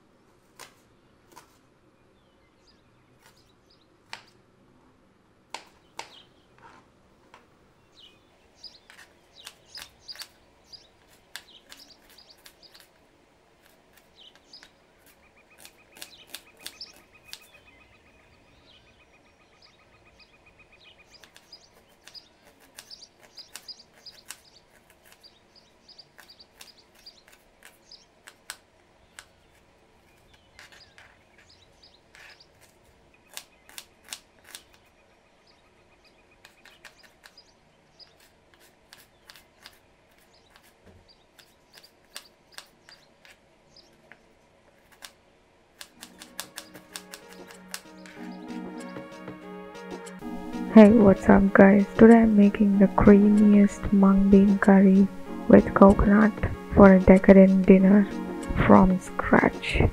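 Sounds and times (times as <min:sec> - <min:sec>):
birds chirping: 0:00.8 - 0:04.3, 0:05.6 - 0:44.6, 0:45.8 - 0:59.9
knife chopping onion on board: 0:45.8 - 0:48.2.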